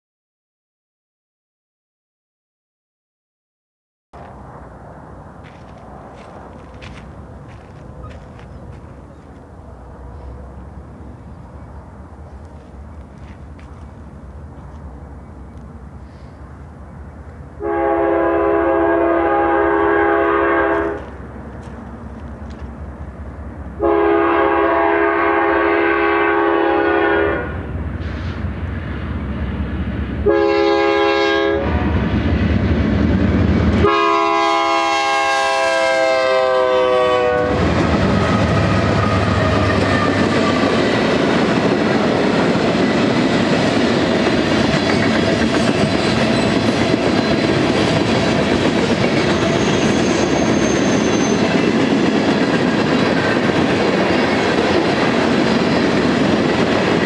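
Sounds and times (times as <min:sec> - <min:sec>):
train rumbling past: 0:04.2 - 0:57.0
wheels clacking over rail joints: 0:05.4 - 0:15.8, 0:37.6 - 0:57.0
locomotive air horn blasts: 0:17.6 - 0:21.1, 0:23.8 - 0:27.7, 0:30.2 - 0:32.0, 0:33.8 - 0:37.6.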